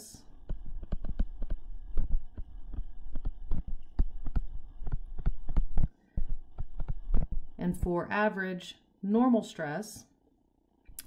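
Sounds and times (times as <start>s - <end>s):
stylus tapping on tablet screen: 0.3s - 7.9s.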